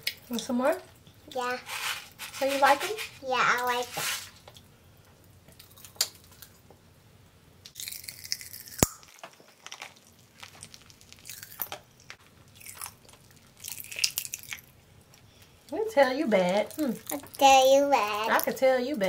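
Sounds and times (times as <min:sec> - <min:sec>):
popping candy crackling in mouth: 0:07.7 - 0:15.3, 0:16.5 - 0:18.6.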